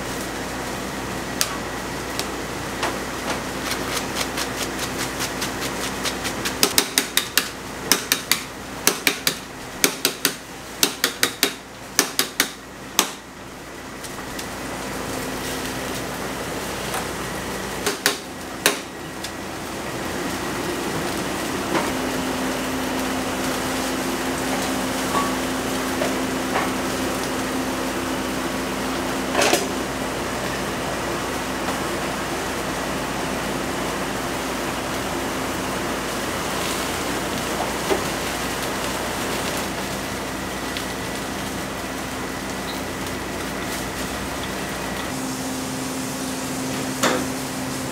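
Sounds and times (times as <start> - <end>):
boiling pot and burner hiss: 0.0 - 47.9
pots and utensils clanking: 24.5 - 26.8, 46.8 - 47.4.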